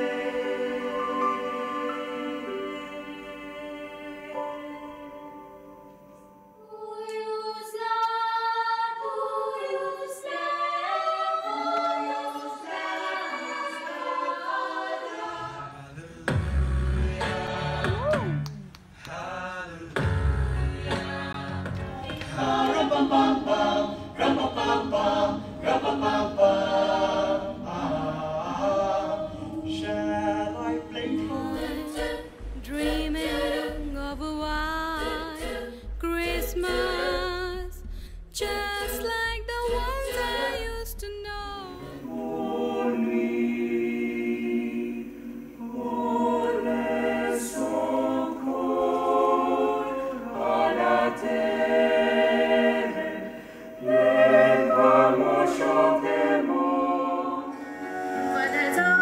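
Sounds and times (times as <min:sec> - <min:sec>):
mixed choir singing in harmony: 0:00.0 - 0:18.4, 0:19.0 - 0:37.5, 0:38.4 - 0:59.0
low rumble: 0:31.6 - 0:41.7.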